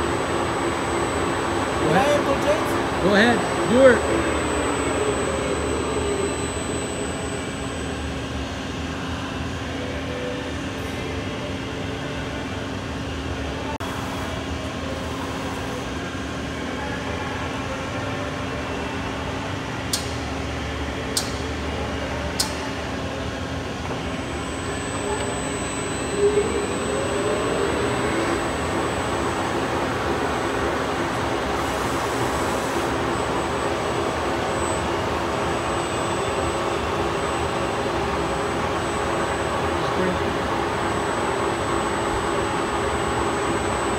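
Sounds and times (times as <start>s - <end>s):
lathe chuck spinning with whine: 0.0s - 9.6s, 23.8s - 43.9s
shop machinery hum: 0.0s - 43.9s.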